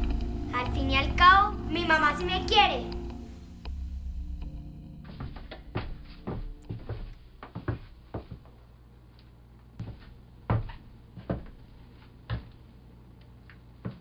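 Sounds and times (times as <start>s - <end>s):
low steady hum: 0.0s - 13.9s.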